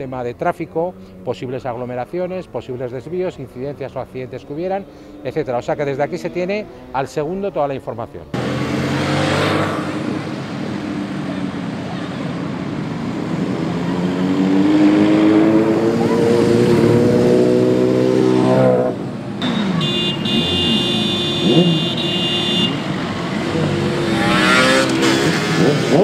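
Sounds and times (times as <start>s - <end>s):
motorcycles accelerating past: 8.4s - 26.0s.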